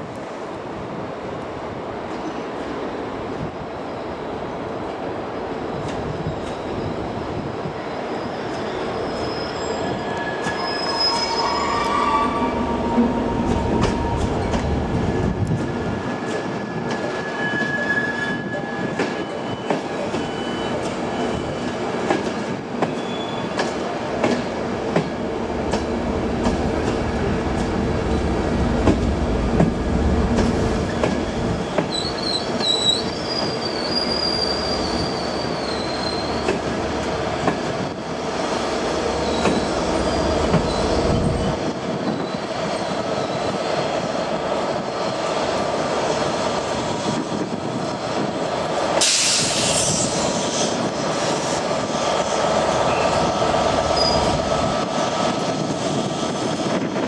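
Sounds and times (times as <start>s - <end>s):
train wheels squealing: 5.7s - 15.4s, 16.1s - 22.0s, 22.8s - 23.8s, 30.8s - 36.7s, 37.3s - 38.2s, 39.1s - 44.4s, 49.0s - 51.6s, 52.8s - 54.5s
train rumble: 9.8s - 57.0s.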